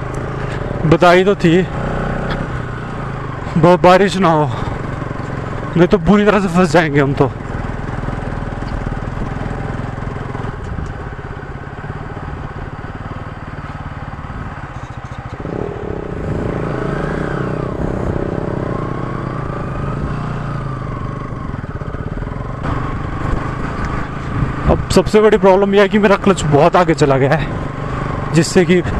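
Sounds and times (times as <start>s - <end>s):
motorcycle engine revving: 0.0s - 28.9s
rider talking: 0.6s - 2.5s, 3.3s - 7.5s, 24.1s - 28.9s.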